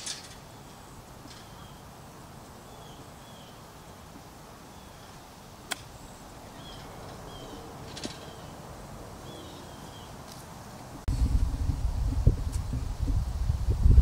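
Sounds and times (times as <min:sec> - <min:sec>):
bird chirping: 0:00.4 - 0:01.9, 0:02.6 - 0:04.1, 0:05.9 - 0:10.2
wind buffeting microphone: 0:11.1 - 0:14.0.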